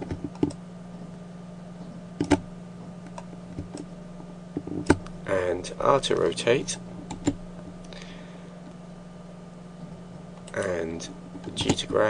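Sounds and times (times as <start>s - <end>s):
keyboard and mouse clicks: 0.0s - 0.6s, 2.2s - 2.4s
low electrical hum: 0.0s - 12.0s.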